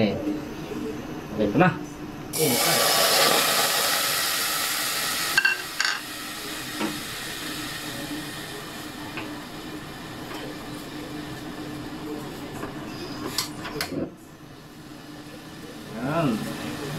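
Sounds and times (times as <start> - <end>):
pork sizzling in pot: 2.3 - 13.6, 14.6 - 16.9.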